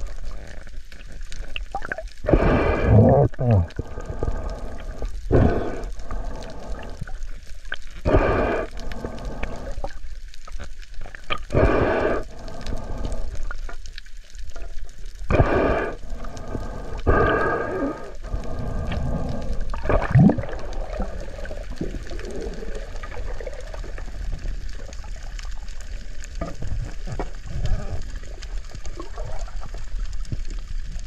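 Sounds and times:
faint watery hiss: 0:00.0 - 0:31.0
breathing through a snorkel: 0:02.2 - 0:10.2, 0:11.3 - 0:13.9, 0:15.1 - 0:23.5.

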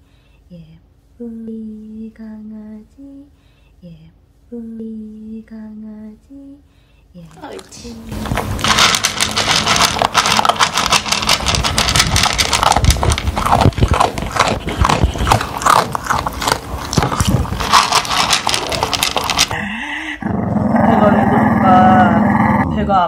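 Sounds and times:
dog crunching dry kibble: 0:07.3 - 0:19.6.

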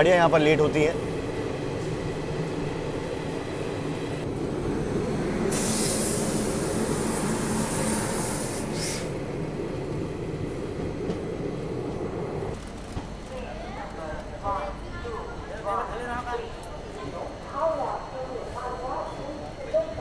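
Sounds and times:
train wheels rumbling on track: 0:00.0 - 0:17.6
loud hissing rush: 0:04.8 - 0:09.6.

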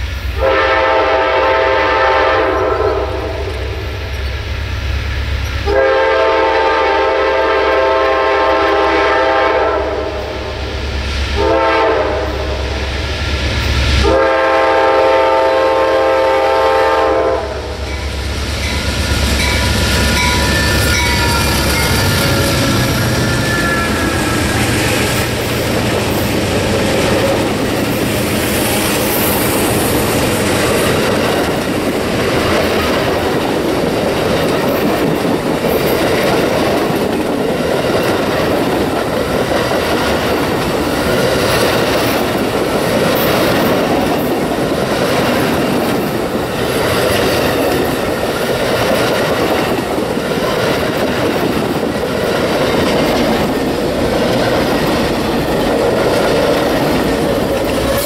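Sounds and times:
train wheels rumbling: 0:00.0 - 0:58.0
wheels clacking over rail joints: 0:17.8 - 0:58.0.

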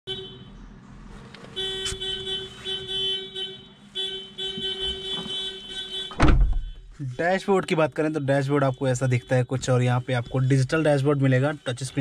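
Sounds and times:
vehicle horn blasts: 0:00.1 - 0:00.5, 0:01.6 - 0:06.9.

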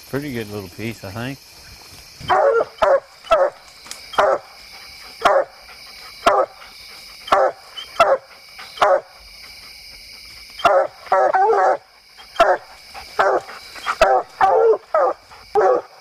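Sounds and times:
insects chirring: 0:00.0 - 0:16.0
dog barking: 0:02.3 - 0:03.6, 0:04.2 - 0:04.5, 0:05.2 - 0:05.6, 0:06.2 - 0:06.6, 0:07.3 - 0:09.2, 0:10.6 - 0:16.0.

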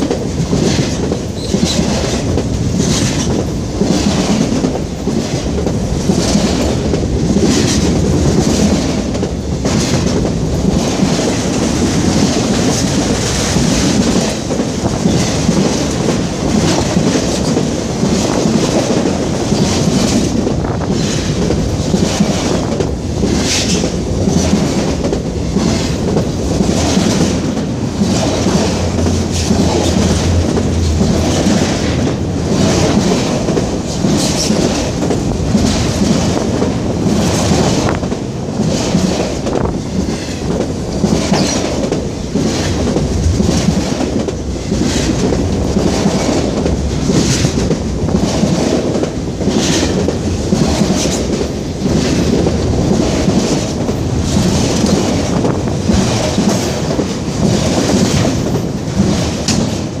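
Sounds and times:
freight train wheels rumbling: 0:00.0 - 1:00.0
wheels clickety-clack: 0:00.0 - 1:00.0.

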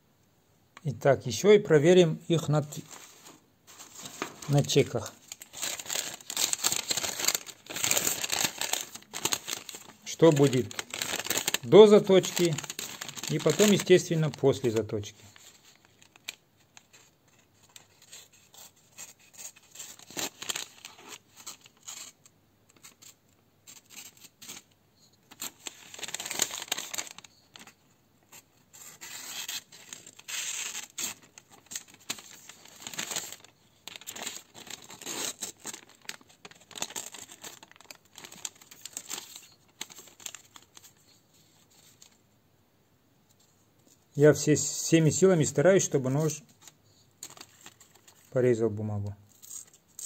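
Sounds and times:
paper rustling and tearing: 0:02.7 - 0:22.2, 0:25.3 - 0:42.2, 0:46.6 - 0:48.3
knife rasping through paper: 0:28.7 - 0:31.2.

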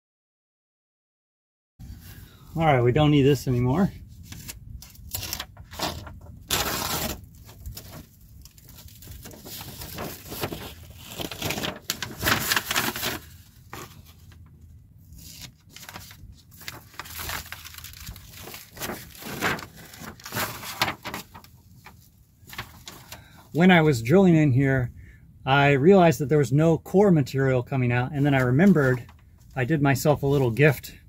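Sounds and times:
paper and tape tearing: 0:04.3 - 0:14.0, 0:15.2 - 0:21.4.

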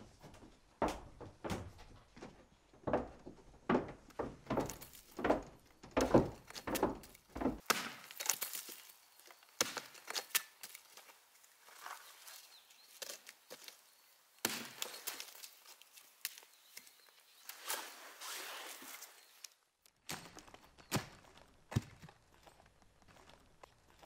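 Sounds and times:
footsteps on wooden stairs: 0:00.0 - 0:07.7
axe chopping wood: 0:06.0 - 0:08.9, 0:09.5 - 0:10.8, 0:14.4 - 0:15.4, 0:20.1 - 0:22.1.

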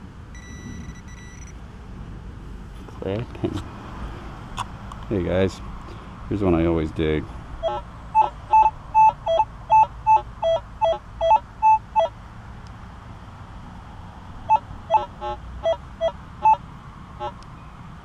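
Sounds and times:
metal detector beeps: 0:00.3 - 0:01.6, 0:07.6 - 0:12.1.

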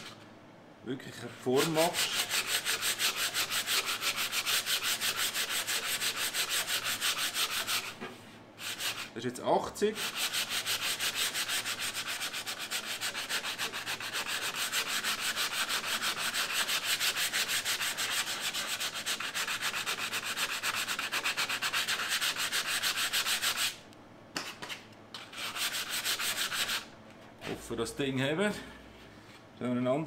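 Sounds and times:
sandpaper sanding strokes: 0:01.4 - 0:08.0, 0:08.6 - 0:09.1, 0:10.0 - 0:23.8, 0:25.2 - 0:26.9.

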